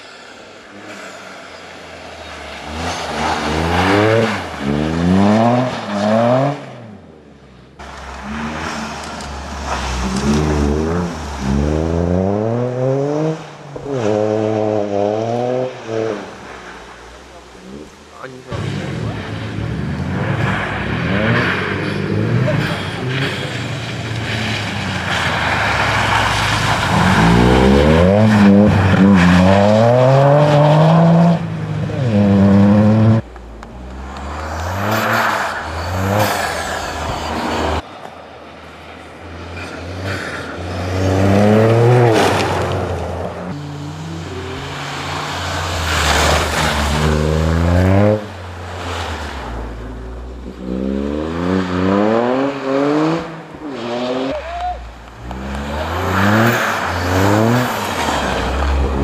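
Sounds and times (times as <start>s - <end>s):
rally car engine accelerating: 17.4s - 37.8s, 39.4s - 59.0s.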